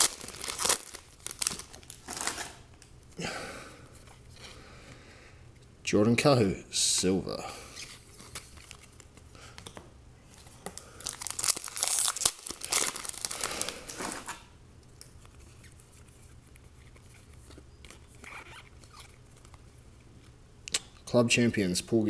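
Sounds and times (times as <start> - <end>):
foil wrapper tearing and crinkling: 0.0 - 2.6, 11.0 - 14.4.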